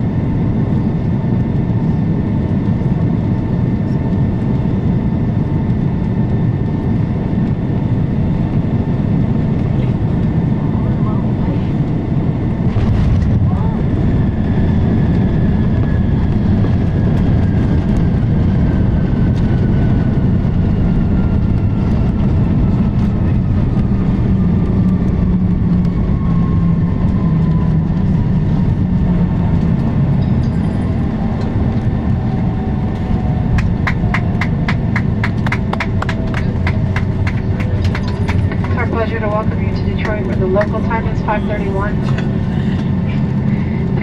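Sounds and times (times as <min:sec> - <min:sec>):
jet engines whining: 0:00.0 - 0:44.0
wheels rumbling on runway: 0:00.0 - 0:44.0
rushing air: 0:42.0 - 0:44.0.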